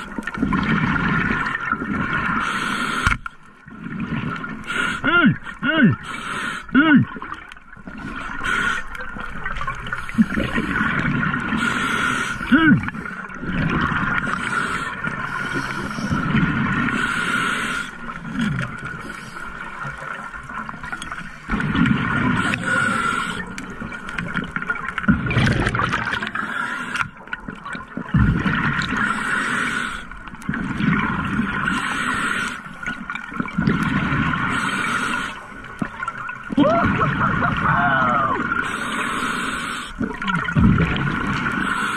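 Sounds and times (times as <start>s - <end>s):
regulator inhales: 38.6s - 40.0s
gurgling exhaust bubbles: 40.0s - 41.6s.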